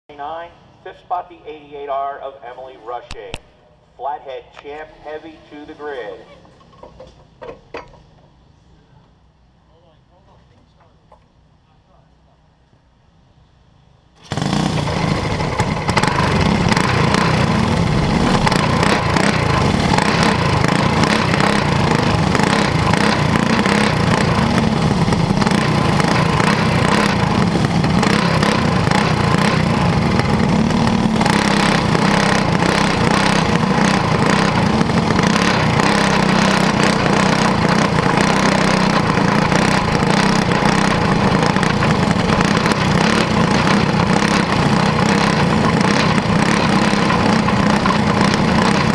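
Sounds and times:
chassis rattle: 14.2 - 48.9
small kart engine running: 14.2 - 48.9.

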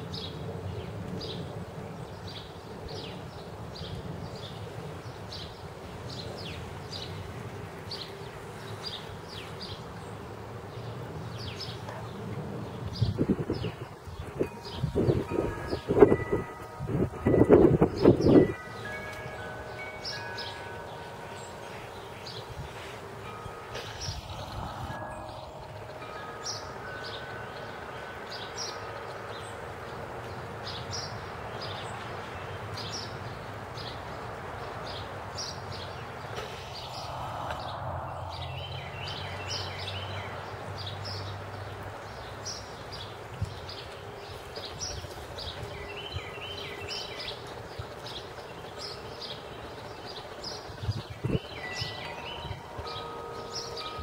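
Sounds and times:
outdoor background hiss: 0.0 - 54.0
small birds chirping: 17.5 - 54.0.

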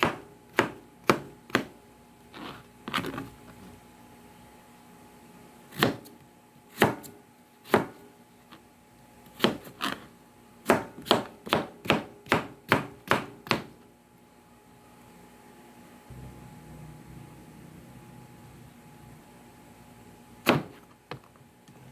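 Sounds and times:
knife chopping on cutting board: 0.0 - 1.7, 6.7 - 8.0, 9.4 - 10.0, 10.6 - 13.8.

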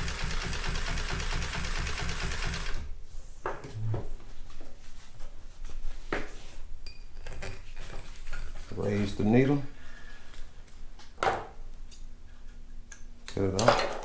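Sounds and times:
sewing machine stitching: 0.0 - 2.9.

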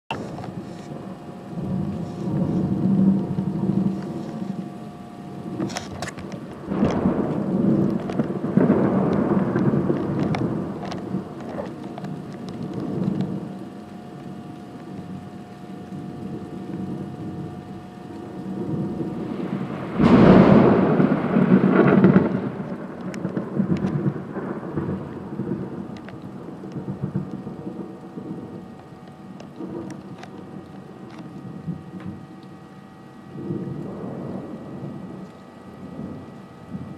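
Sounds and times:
rain hissing: 0.1 - 36.9
thunder rumbling: 0.1 - 36.9
thunder crack: 1.6 - 13.7, 18.2 - 32.3.

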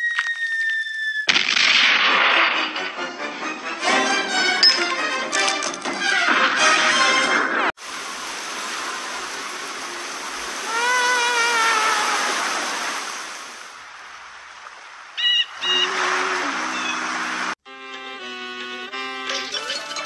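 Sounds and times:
cartoon rain hiss: 7.8 - 13.8, 15.6 - 17.6
light music: 17.7 - 20.0.

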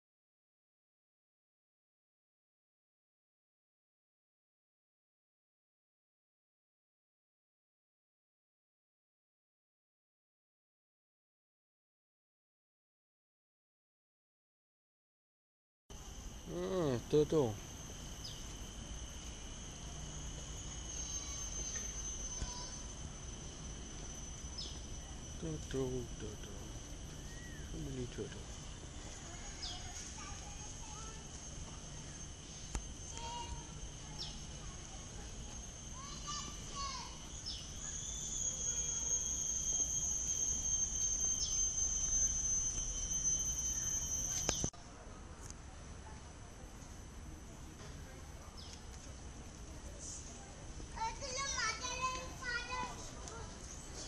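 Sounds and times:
insects whining: 15.9 - 44.7, 47.0 - 54.0
click: 44.3 - 44.7.

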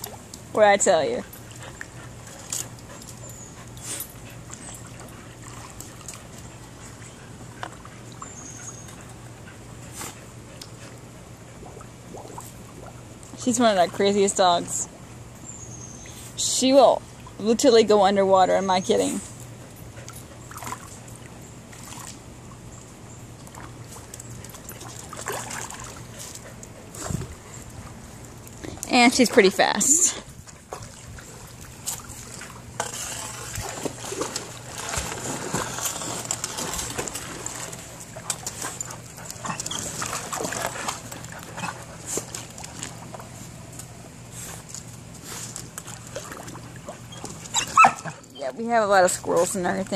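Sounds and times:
water lapping and splashing: 0.0 - 15.2, 16.1 - 49.9
steady low hum: 0.0 - 49.9
dogs whining: 47.1 - 48.5.

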